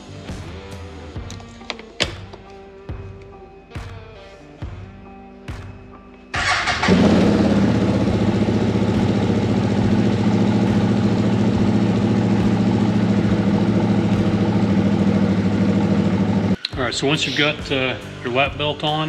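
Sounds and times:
engine starting and idling: 6.4s - 16.6s.

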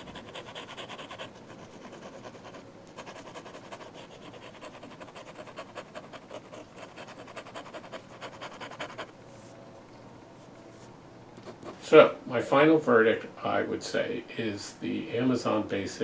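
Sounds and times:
pen nib scratching paper: 0.0s - 9.1s.

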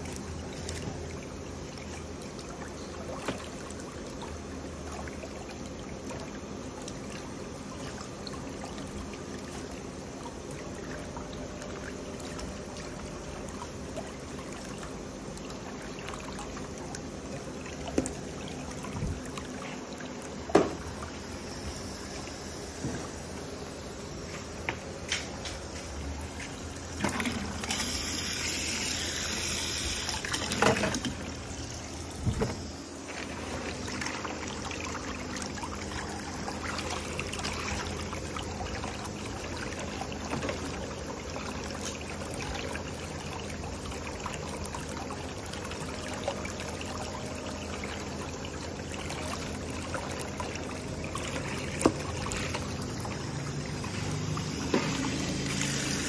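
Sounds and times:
whirlpool jet stirring water: 0.0s - 56.0s
water spraying into tub: 26.8s - 44.3s, 47.7s - 56.0s.

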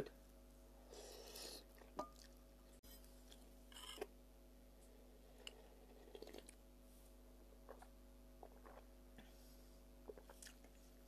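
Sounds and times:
soft chewing: 1.5s - 4.1s, 7.4s - 11.0s.

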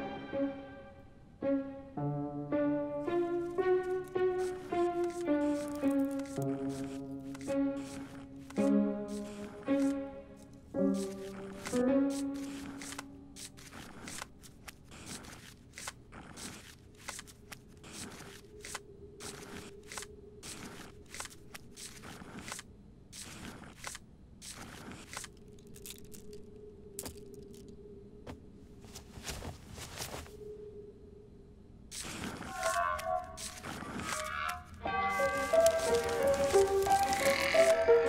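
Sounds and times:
faint clicks and crackles: 31.9s - 38.0s.

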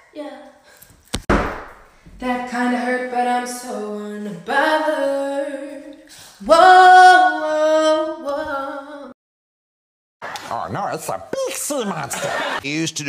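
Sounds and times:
woman singing a cappella: 2.2s - 9.2s.

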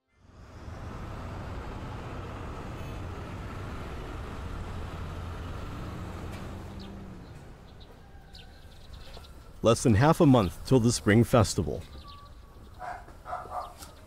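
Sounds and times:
city traffic rumble: 0.0s - 14.0s
faint bird chirps: 11.8s - 14.0s.

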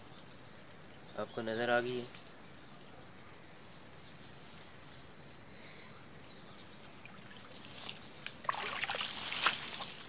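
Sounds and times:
high insect drone: 0.0s - 10.0s
splashing and rustling at water: 7.0s - 10.0s.

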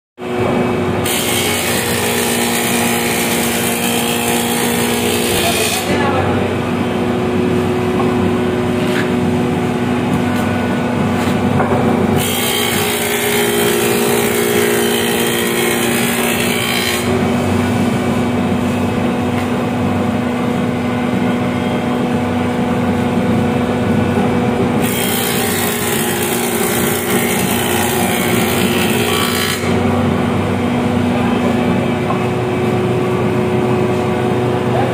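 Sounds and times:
planer cutting wooden board: 1.0s - 6.4s, 10.2s - 18.4s, 24.1s - 30.1s.

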